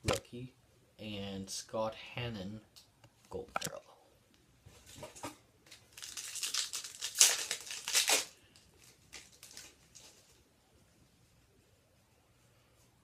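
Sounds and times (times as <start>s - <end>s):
plastic wrapper crinkling: 5.7s - 10.4s.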